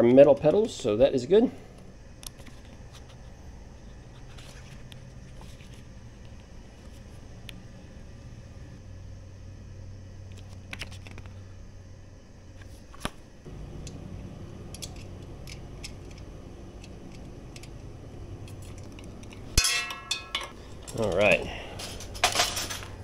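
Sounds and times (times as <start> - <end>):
steady low hum: 0.0 - 23.0
tool clanking against metal: 14.6 - 21.0
paper and metal parts rustling: 20.4 - 23.0.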